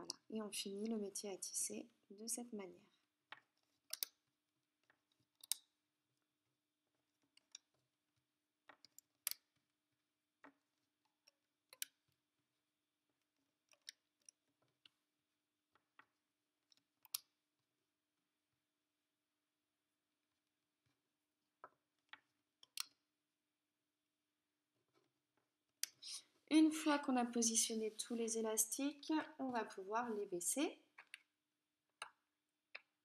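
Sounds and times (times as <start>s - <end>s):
rubber bands clicking onto plastic pegs: 3.3s - 5.8s, 7.2s - 7.9s, 8.6s - 9.7s, 10.4s - 12.2s, 13.2s - 15.0s, 15.7s - 17.4s, 21.6s - 23.0s, 31.0s - 31.3s, 31.9s - 33.0s.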